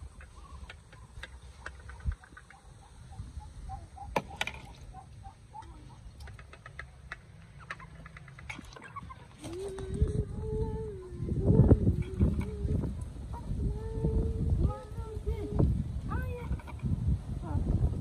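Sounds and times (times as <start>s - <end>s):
chickens clucking and chirping: 0.0s - 15.7s
sharp clicks: 6.2s - 8.6s
steady low rumble: 9.8s - 18.0s.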